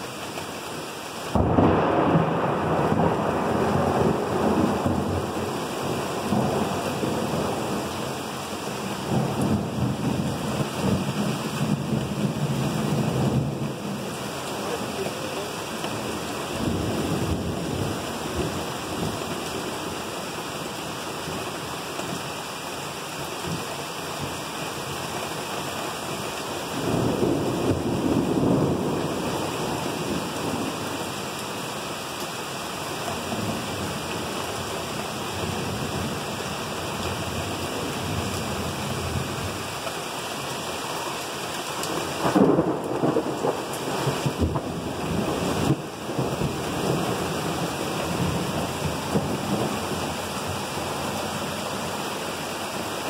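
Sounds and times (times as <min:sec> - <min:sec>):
rain pelting a roof: 0:00.0 - 0:53.0
thunder rumbling: 0:01.3 - 0:20.0, 0:26.8 - 0:31.1, 0:41.9 - 0:52.0.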